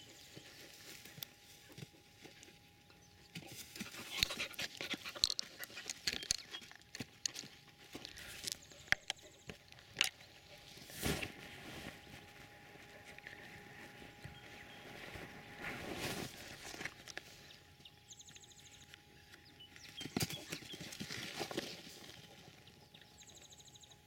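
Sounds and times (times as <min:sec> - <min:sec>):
animal rustling through dry grass: 0:00.0 - 0:02.7, 0:09.8 - 0:18.9, 0:19.8 - 0:22.8.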